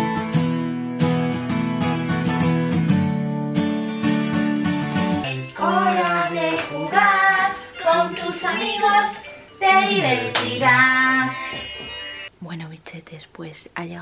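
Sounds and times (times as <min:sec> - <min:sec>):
music: 0:00.0 - 0:12.3
person singing: 0:05.2 - 0:11.7.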